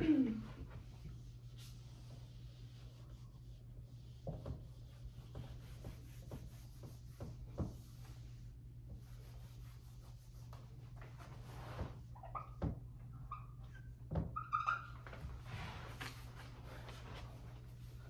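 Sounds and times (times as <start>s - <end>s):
eraser scrubbing whiteboard: 1.0s - 10.8s.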